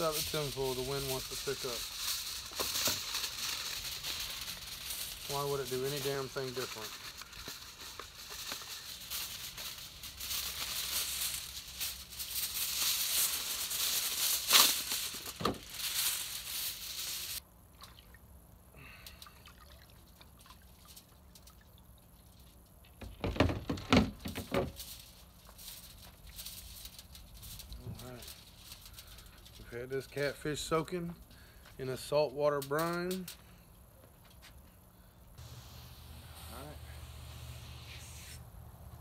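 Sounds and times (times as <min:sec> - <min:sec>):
aluminium foil crinkling: 0:00.0 - 0:17.4, 0:20.0 - 0:23.2, 0:24.0 - 0:33.5
water splashing and dripping: 0:19.2 - 0:22.3.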